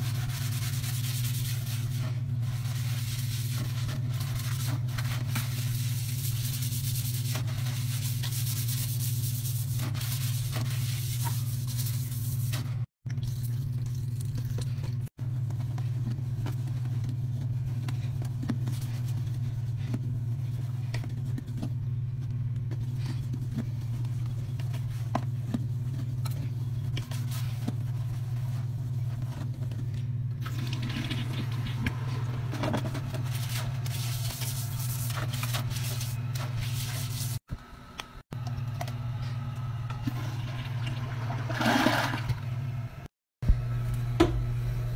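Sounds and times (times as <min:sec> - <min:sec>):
steady low hum: 0:00.0 - 0:41.4
toilet flushing: 0:30.4 - 0:33.0, 0:39.9 - 0:43.1.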